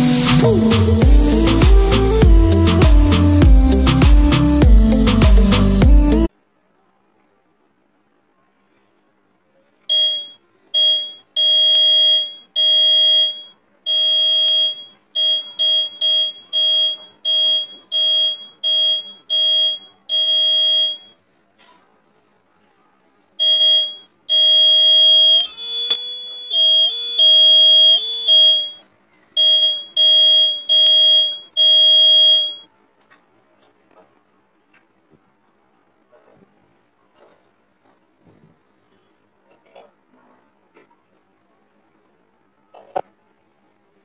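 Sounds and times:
shrill piezo buzzer beeps: 0:09.9 - 0:21.2, 0:23.4 - 0:28.8, 0:29.4 - 0:32.7.

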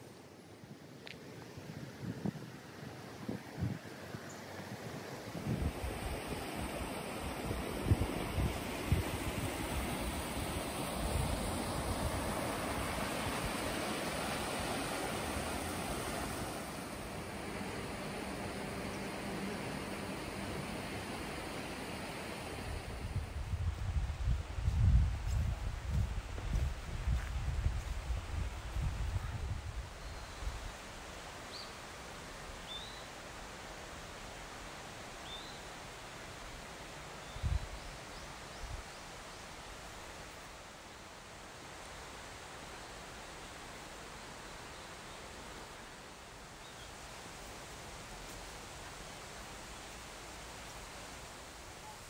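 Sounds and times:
steady hiss of bamboo grove: 0:00.0 - 0:52.0
wind rumbling on microphone: 0:00.8 - 0:31.1, 0:37.3 - 0:39.0
river rushing over rocks: 0:02.5 - 0:23.4.

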